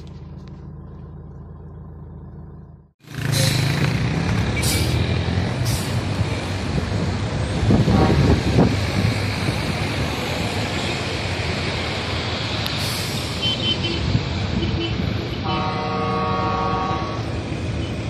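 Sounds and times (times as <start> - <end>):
traffic and road noise: 0.0 - 18.0
vehicle horn long note: 7.8 - 8.3, 13.4 - 17.9.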